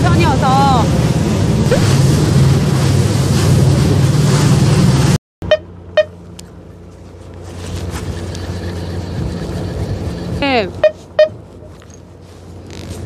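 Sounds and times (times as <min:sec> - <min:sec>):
boat engine running: 0:00.0 - 0:13.0
wind noise on microphone: 0:07.9 - 0:11.5
short horn beeps: 0:10.8 - 0:11.4.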